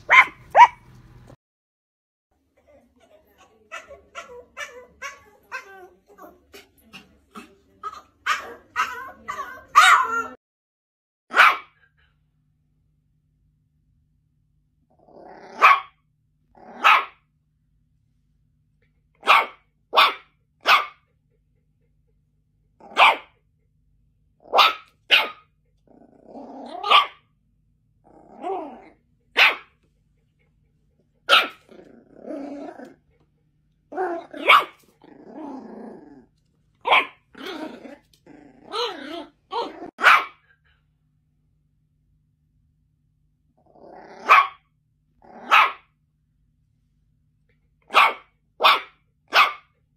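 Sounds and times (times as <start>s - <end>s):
small dog barking: 0.0s - 0.9s, 7.9s - 10.4s, 11.3s - 11.8s, 15.6s - 16.0s, 16.8s - 17.2s, 19.2s - 21.0s, 22.9s - 23.3s, 24.5s - 25.5s, 26.8s - 27.2s, 29.4s - 29.7s, 31.3s - 31.6s, 34.1s - 34.8s, 36.8s - 37.2s, 38.7s - 40.4s, 44.2s - 44.6s, 45.4s - 45.9s, 47.9s - 49.7s
dog growling: 14.9s - 15.7s, 25.9s - 26.9s, 28.0s - 29.1s, 31.6s - 33.1s, 33.9s - 36.4s, 37.3s - 40.0s, 43.6s - 44.4s, 45.2s - 45.6s.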